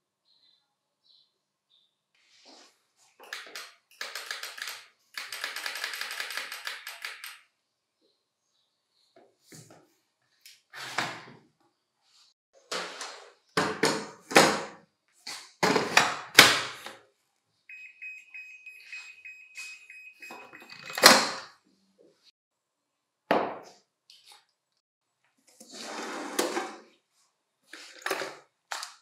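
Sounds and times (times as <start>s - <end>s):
faint steady high tone: 17.7s - 21.0s.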